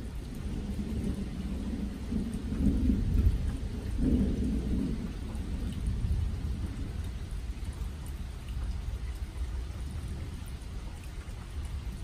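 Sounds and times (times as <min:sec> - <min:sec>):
rolling thunder rumble: 0:00.0 - 0:08.2.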